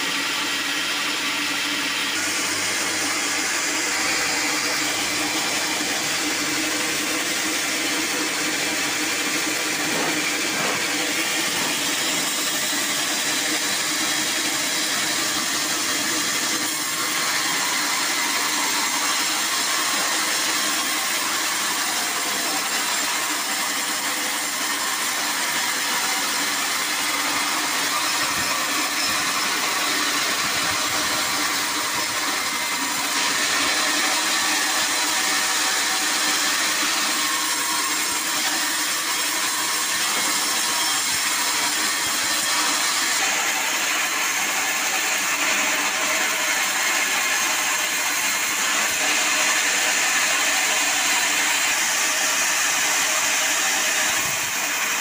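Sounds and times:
band sawmill running: 0.0s - 55.0s
saw blade cutting log: 0.0s - 55.0s.

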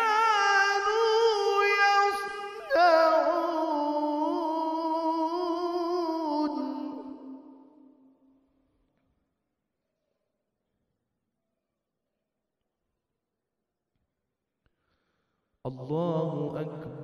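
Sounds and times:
man chanting melodically: 0.0s - 7.3s, 15.7s - 17.0s.

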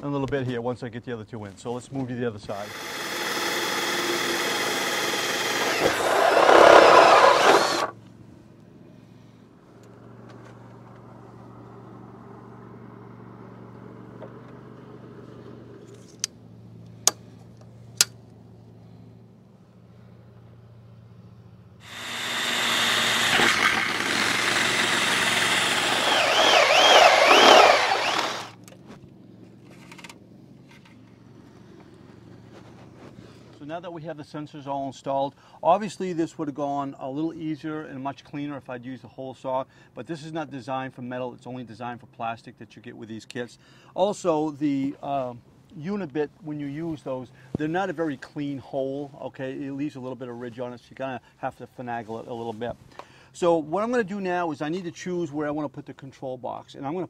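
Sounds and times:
cordless drill whirring: 2.6s - 7.9s, 21.8s - 28.6s
drill bit squealing: 2.6s - 7.9s, 21.9s - 28.5s
sharp clicks: 22.0s - 28.8s.

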